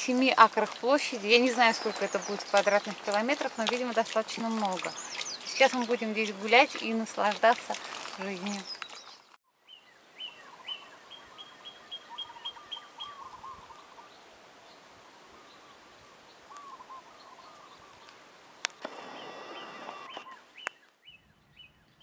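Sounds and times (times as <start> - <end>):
small birds chirping: 0.1 - 14.8, 15.4 - 18.2, 18.9 - 22.0
birds warbling: 0.4 - 3.6, 4.6 - 6.6, 18.9 - 22.0.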